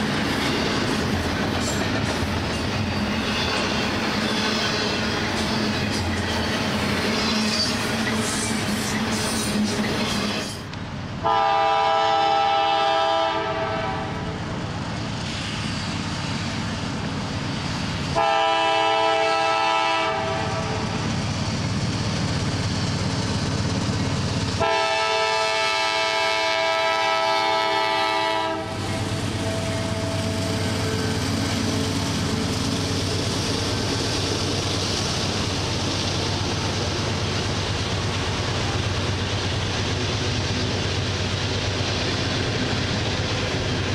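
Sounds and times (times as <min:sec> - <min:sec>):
train rumble and wheel clatter: 0:00.0 - 0:43.9
locomotive air horn blasts: 0:11.2 - 0:14.3, 0:18.2 - 0:20.8, 0:24.6 - 0:30.5.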